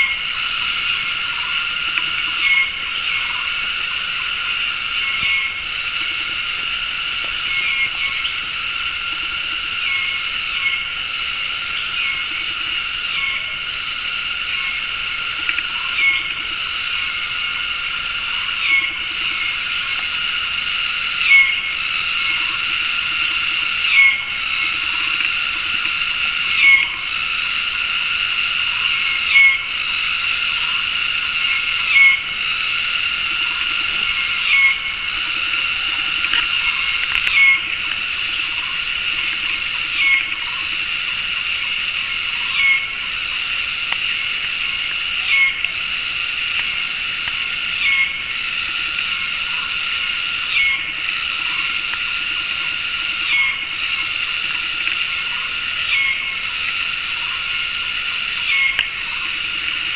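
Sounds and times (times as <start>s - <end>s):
cicadas chorus: 0.0s - 59.9s.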